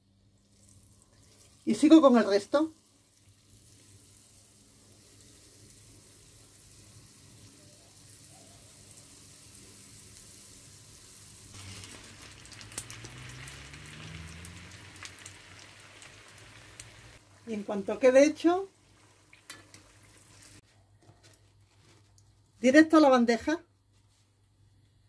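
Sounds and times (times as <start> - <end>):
oil sizzling in frying pan: 0.3 - 20.6
oil popping: 11.4 - 17.4, 18.7 - 20.6.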